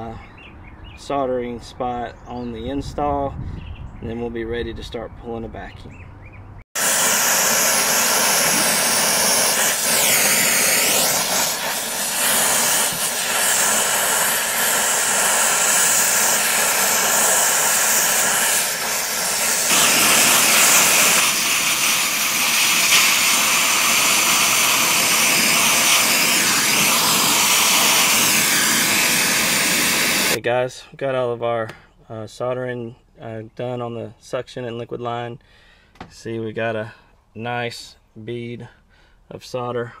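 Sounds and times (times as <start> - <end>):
torch flame hissing: 6.8 - 30.4.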